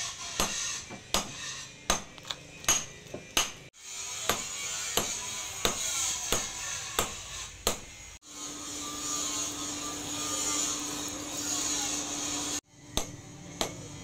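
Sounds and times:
hammer striking blade on anvil: 0:00.4 - 0:07.9.

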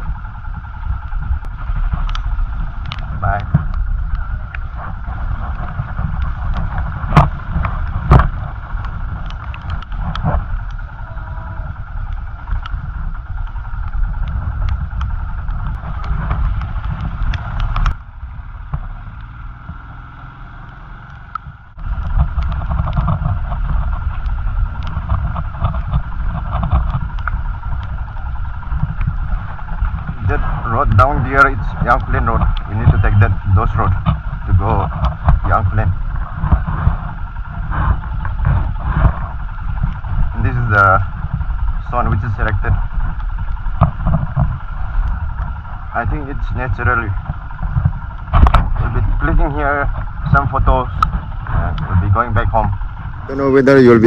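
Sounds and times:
motorcycle engine running: 0:00.0 - 0:54.0
knocks and rattles: 0:21.8 - 0:27.9.

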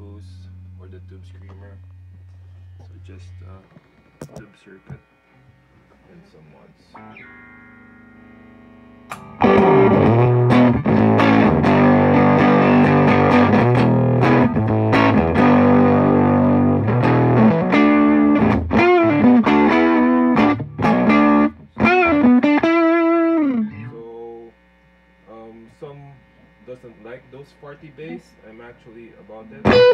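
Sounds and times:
distorted electric guitar: 0:06.9 - 0:23.9, 0:29.6 - 0:29.9.

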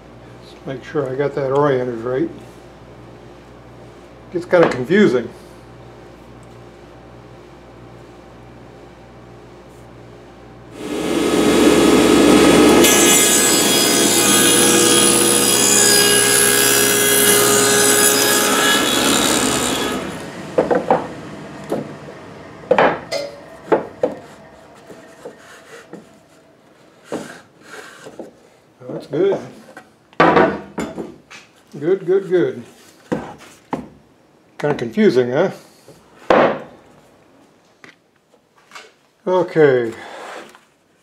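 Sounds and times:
table saw cutting wood: 0:10.7 - 0:26.2.

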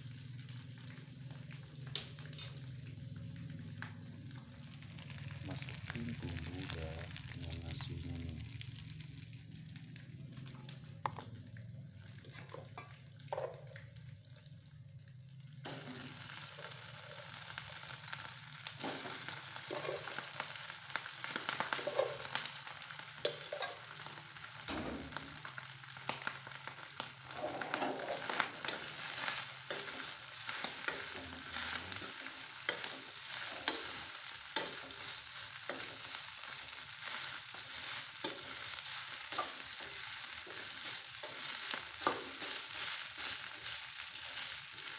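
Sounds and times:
rice sizzling in a wok: 0:00.0 - 0:44.9
spatula scraping and knocking pan: 0:18.8 - 0:20.1, 0:37.1 - 0:43.4.

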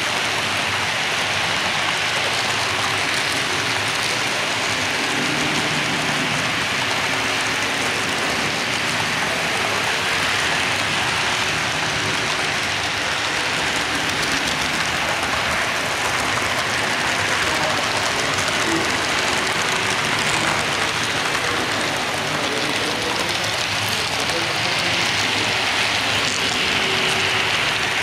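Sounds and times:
model train wheels on track: 0:00.0 - 0:28.0.

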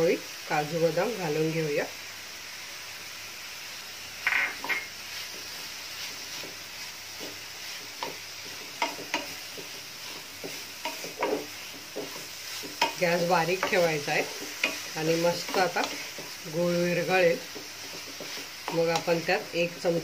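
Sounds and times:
low sizzle of cooking: 0:00.0 - 0:20.0
spatula scraping a pan: 0:04.3 - 0:20.0.

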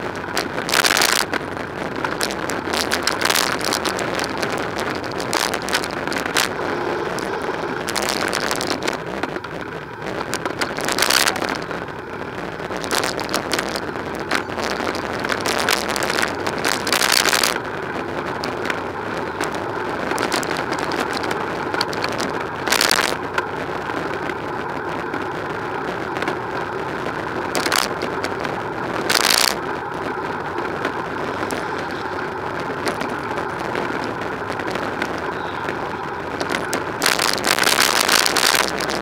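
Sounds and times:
road traffic noise: 0:00.0 - 0:39.0
vehicles rushing past: 0:01.1 - 0:21.6.

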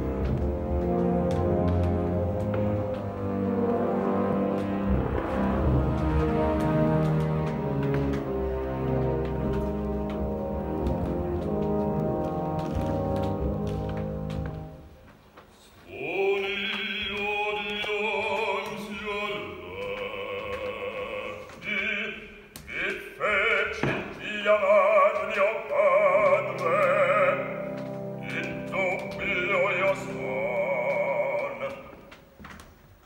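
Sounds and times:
sustained low orchestral notes: 0:00.0 - 0:15.1, 0:24.4 - 0:31.8
operatic bass voice singing: 0:15.9 - 0:27.6, 0:28.2 - 0:32.0.

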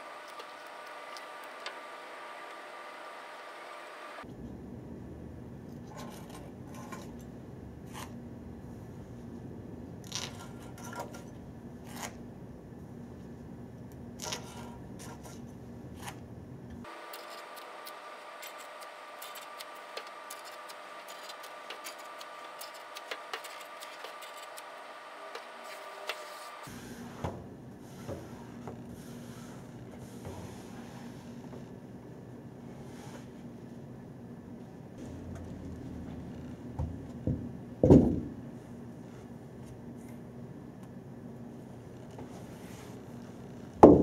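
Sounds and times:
steady background hum: 0:00.0 - 0:44.0.

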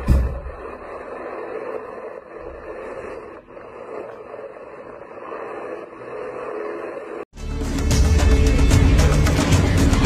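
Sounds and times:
helicopter rotor and turbine noise: 0:00.0 - 0:07.3.

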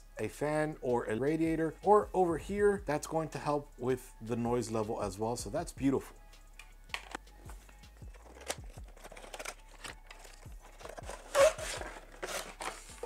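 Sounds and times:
faint background music: 0:00.0 - 0:13.0
cardboard rustling scrape: 0:08.1 - 0:13.0.

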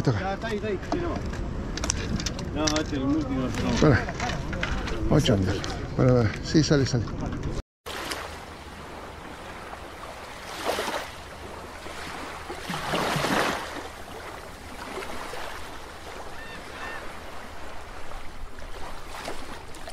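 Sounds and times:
rushing water ambience: 0:07.9 - 0:19.9.

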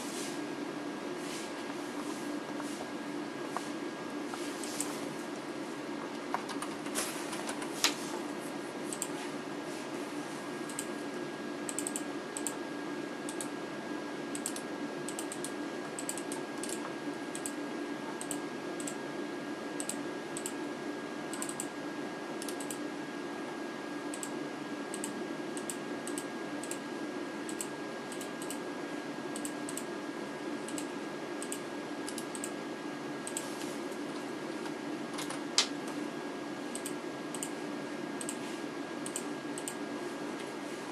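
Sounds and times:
steady low hum: 0:00.0 - 0:40.9
keyboard keys clicking: 0:06.2 - 0:08.0.

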